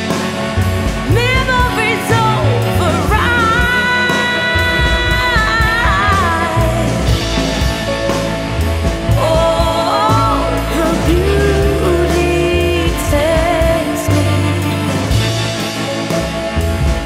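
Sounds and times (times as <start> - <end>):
bass: 0.0 - 17.0
steady drum beat: 0.0 - 17.0
woman singing: 1.0 - 7.4, 9.1 - 15.3.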